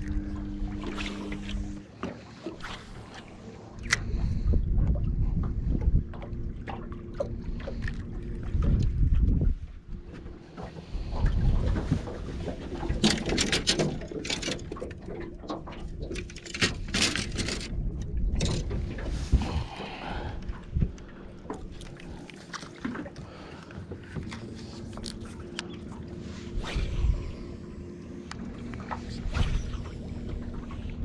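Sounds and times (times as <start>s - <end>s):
water lapping against boat hull: 0.0s - 31.0s
wind buffeting microphone: 4.0s - 13.2s, 16.8s - 22.2s, 26.4s - 27.7s.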